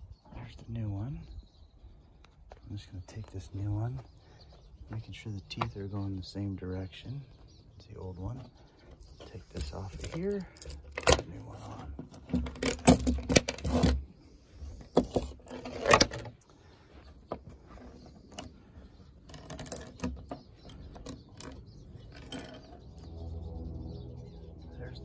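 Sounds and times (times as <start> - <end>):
chainsaw chain rattling: 9.5 - 11.3, 12.1 - 14.0, 19.2 - 22.8.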